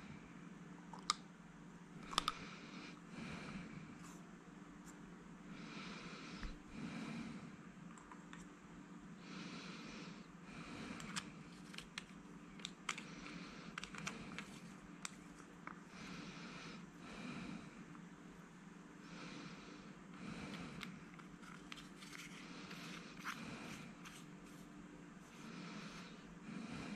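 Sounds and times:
person breathing through nose: 19.0 - 24.6, 25.2 - 26.9.

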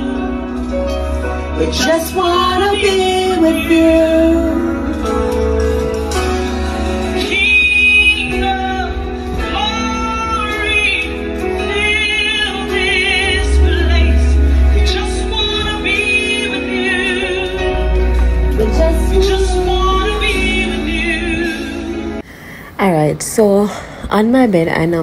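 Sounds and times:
steady low bass: 0.0 - 22.2
woman singing with vibrato: 1.5 - 5.2, 7.0 - 22.2.

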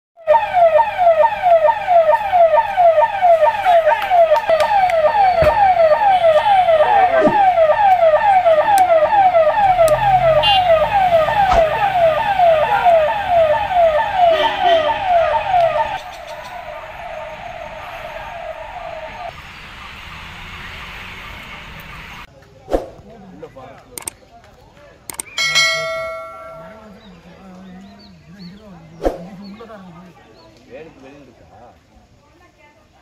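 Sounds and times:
electronic siren falling tone: 0.2 - 19.3.

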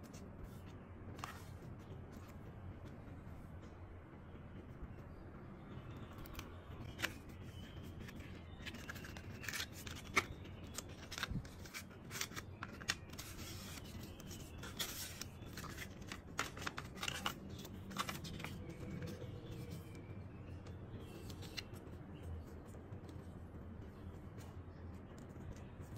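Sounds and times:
cardboard and paper rustling: 6.9 - 19.6.

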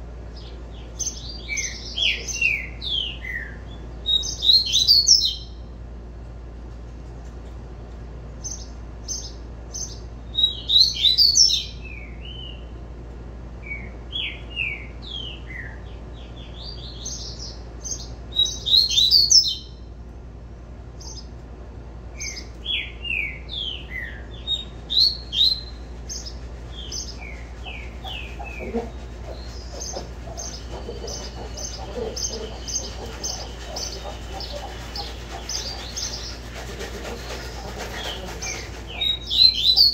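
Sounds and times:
bird singing high whistled notes: 9.8 - 12.6, 16.6 - 19.8, 38.9 - 39.9.

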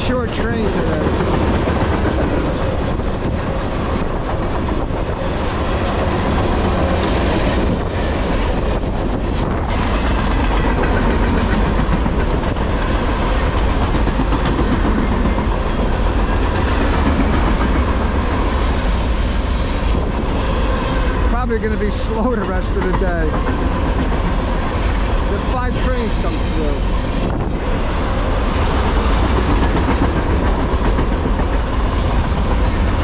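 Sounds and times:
freight train rolling past: 0.0 - 33.0.

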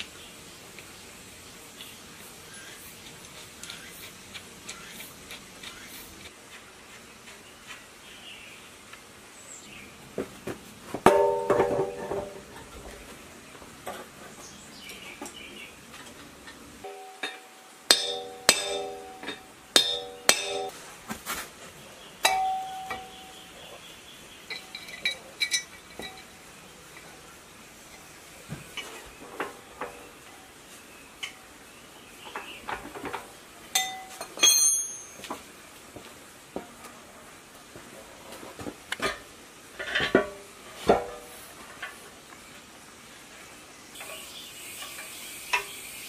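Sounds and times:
struck metal ringing: 11.1 - 12.4, 16.8 - 20.7, 22.2 - 23.4
metal parts clinking and knocking: 24.5 - 26.4.

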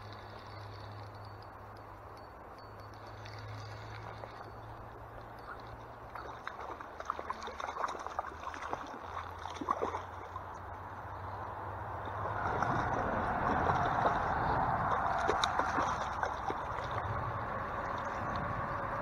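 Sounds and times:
fish splashing in water: 5.4 - 10.7, 12.0 - 18.7.

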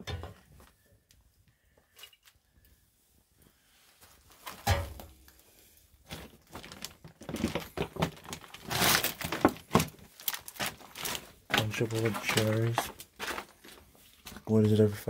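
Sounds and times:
footsteps crunching through debris: 6.0 - 14.6
plastic trash crinkling: 6.0 - 15.0.

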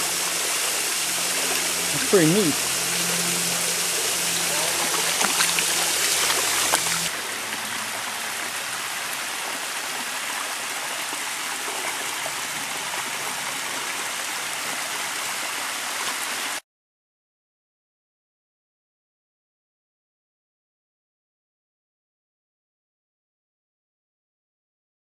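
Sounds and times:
waterfall splashing over rocks: 0.0 - 16.6.

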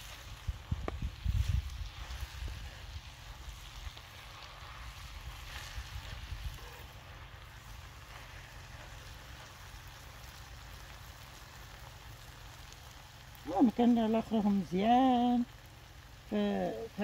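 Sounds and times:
wind rumbling on microphone: 0.0 - 9.5.

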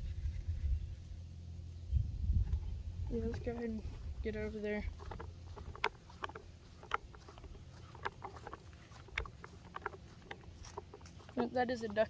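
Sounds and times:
low rumble: 0.0 - 7.7
footsteps on dry ground: 2.5 - 12.0.

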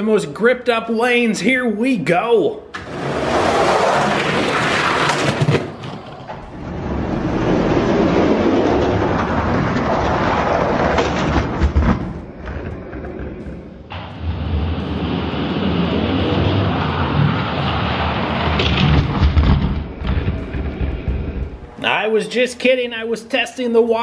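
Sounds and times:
toy trucks rolling on plastic track: 2.8 - 13.4, 16.2 - 21.4.

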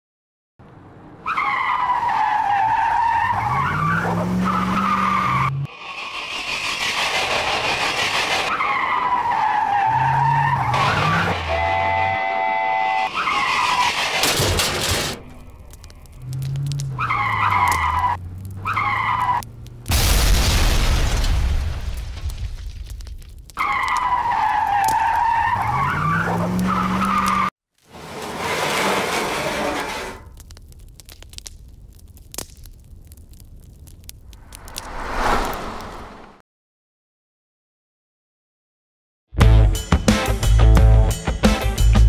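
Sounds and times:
engines revving: 3.2 - 15.3
tyres squealing: 8.3 - 19.6
explosion blast: 19.9 - 22.9.

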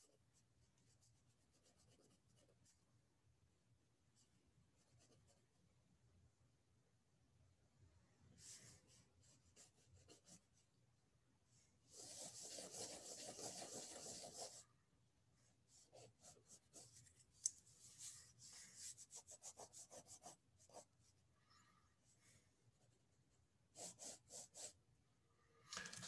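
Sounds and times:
pencil scratching on paper: 0.0 - 2.8, 4.8 - 5.6, 8.4 - 10.6, 11.9 - 14.6, 15.7 - 21.0, 23.7 - 24.8.

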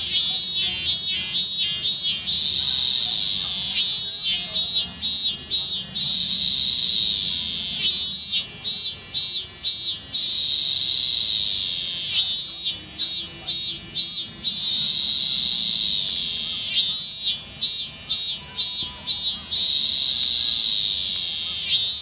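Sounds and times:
cicada buzzing: 0.0 - 22.0
cicada pulsing notes: 0.0 - 22.0.

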